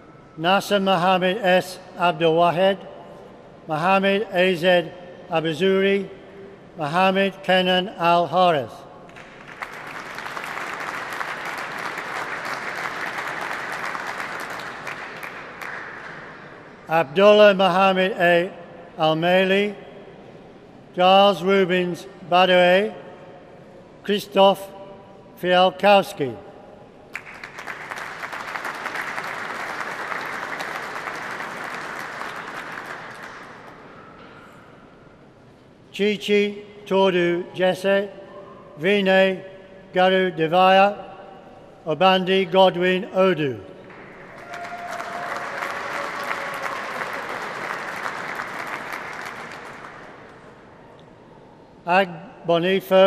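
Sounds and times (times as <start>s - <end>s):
audience applauding: 9.2s - 16.4s, 27.1s - 33.9s, 43.9s - 50.5s.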